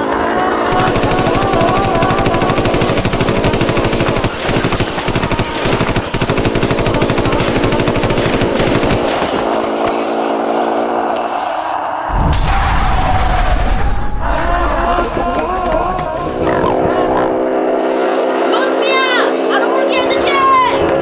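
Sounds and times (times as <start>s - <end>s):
cartoon machine-gun fire: 0.6s - 9.6s.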